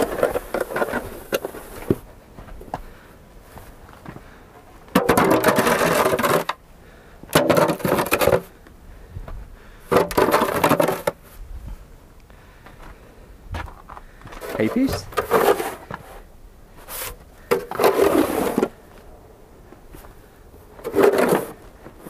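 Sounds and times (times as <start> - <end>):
snow shovel scraping: 5.3 - 6.5, 14.4 - 16.2, 16.9 - 18.8, 20.8 - 21.6.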